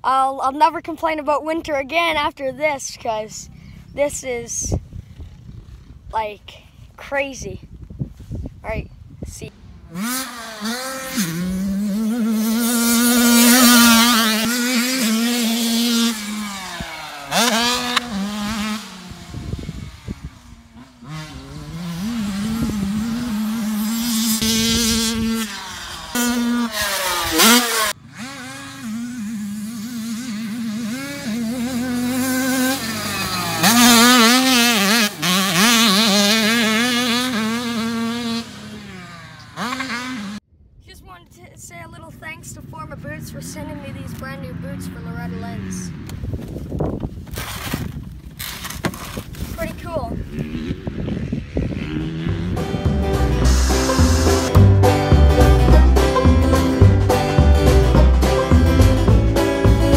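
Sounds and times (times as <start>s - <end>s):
dirt bike engine revving: 9.4s - 40.5s, 42.6s - 46.6s, 49.5s - 59.9s.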